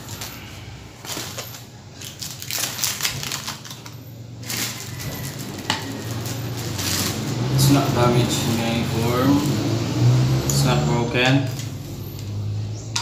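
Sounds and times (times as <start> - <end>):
plastic packaging crinkling: 0.0 - 8.6.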